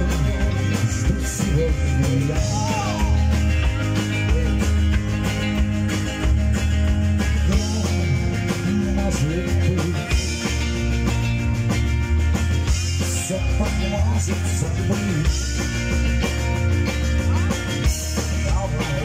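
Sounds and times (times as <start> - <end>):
male lead vocal singing: 0.0 - 4.7, 7.2 - 10.7, 13.0 - 15.8, 18.0 - 19.0
rock band playing live: 0.0 - 19.0.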